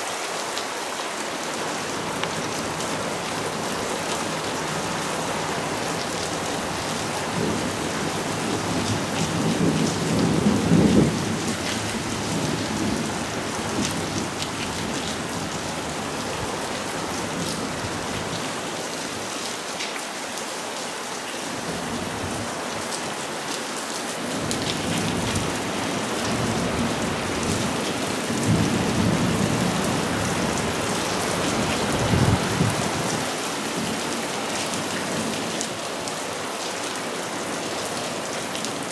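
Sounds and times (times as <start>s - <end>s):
heavy rain pouring on foliage: 0.0s - 38.9s
thunder rumbling: 28.4s - 33.3s.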